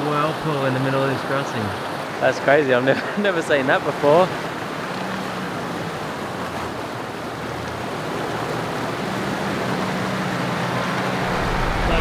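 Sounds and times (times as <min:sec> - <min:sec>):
creek water rushing: 0:00.0 - 0:12.0
vehicle engine running low: 0:10.7 - 0:12.0.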